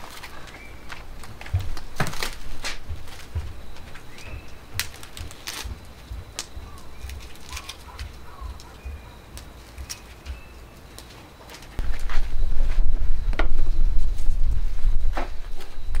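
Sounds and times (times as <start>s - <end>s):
charcoal fire crackling: 0.0s - 16.0s
wind rumble on microphone: 11.8s - 16.0s.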